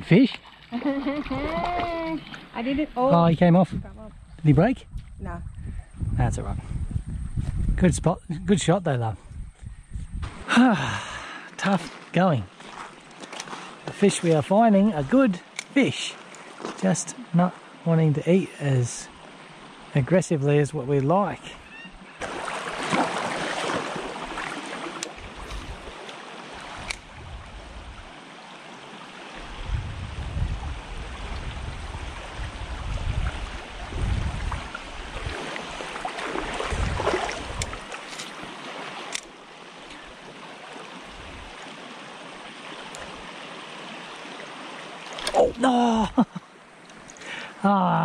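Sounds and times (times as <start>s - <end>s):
stream water running over gravel: 0.0s - 3.6s, 10.2s - 21.4s, 22.2s - 29.7s, 30.4s - 47.5s
low rumbles on microphone: 3.6s - 8.4s, 29.5s - 35.4s.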